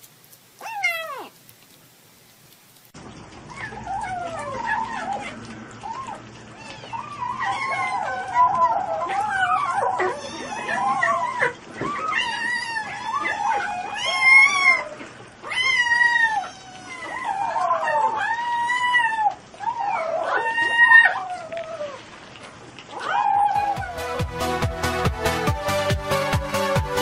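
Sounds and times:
kittens mewing and whining: 0.6s - 1.4s, 3.5s - 22.0s.

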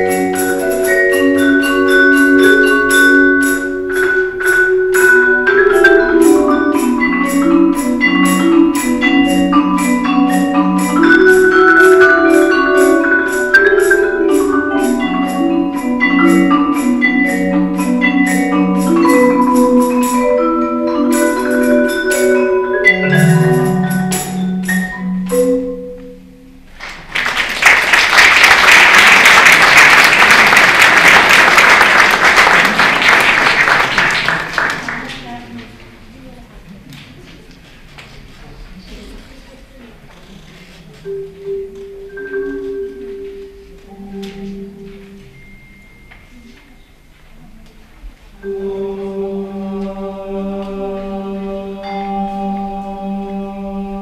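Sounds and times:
tambourine shaken: 0.0s - 25.8s
marimba and vibraphone playing: 0.0s - 26.7s, 41.0s - 47.4s, 48.4s - 54.0s
audience applause: 26.8s - 35.3s.

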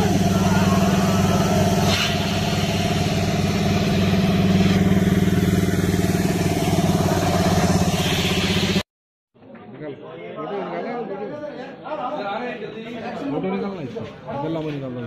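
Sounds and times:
engine idling: 0.0s - 8.8s.

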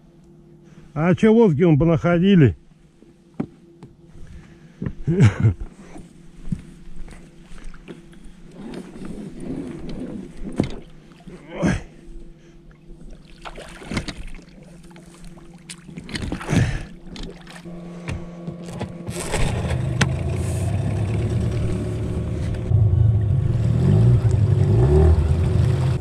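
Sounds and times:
boat motor running: 3.3s - 26.0s
knocks and splashes around boat: 7.5s - 11.4s, 12.7s - 22.7s.

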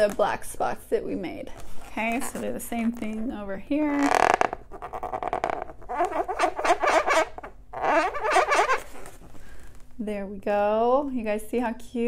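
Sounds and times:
marker squeaking on balloon: 3.9s - 9.2s.

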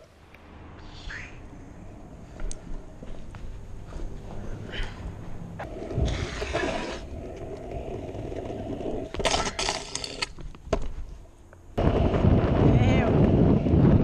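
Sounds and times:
scooter rubbing and clatter: 5.6s - 10.4s.

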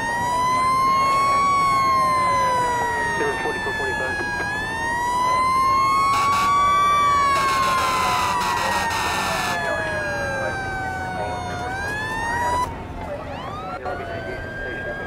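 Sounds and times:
fire engine sirens wailing: 0.0s - 15.0s
harsh noisy horn blast: 7.4s - 9.6s.

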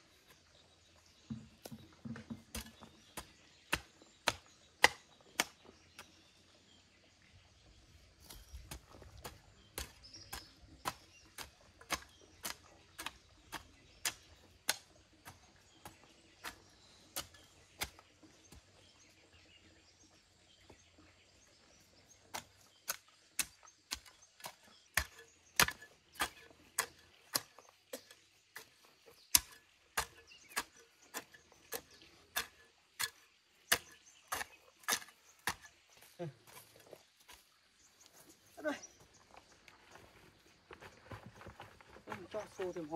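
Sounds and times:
hand tool chopping: 1.3s - 6.1s, 8.5s - 18.7s, 22.3s - 36.8s.

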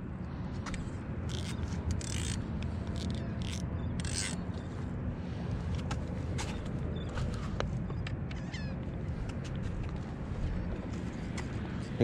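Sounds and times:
steady low rumble: 0.0s - 12.0s
fishing reel cranking: 1.3s - 4.4s.

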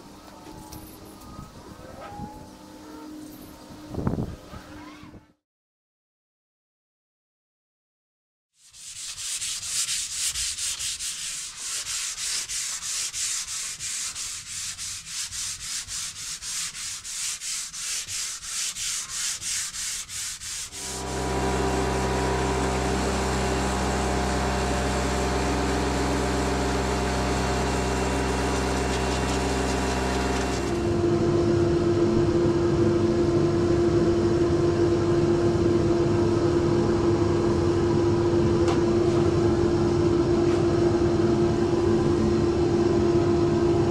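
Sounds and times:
hand sanding board: 8.6s - 22.0s, 27.0s - 30.8s
steady machine drone: 20.6s - 43.9s.

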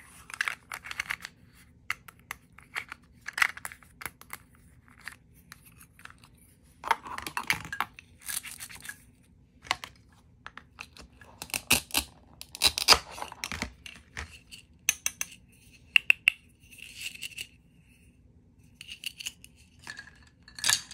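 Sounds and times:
plastic pieces clicking on table: 10.5s - 15.4s.

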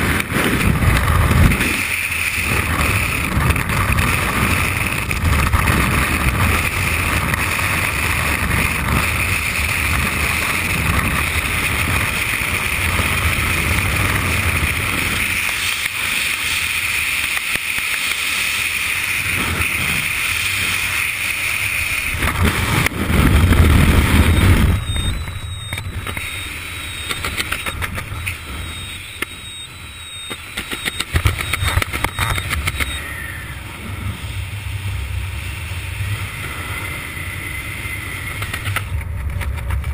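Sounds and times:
wind rushing over microphone: 0.0s - 15.4s, 19.1s - 30.0s.

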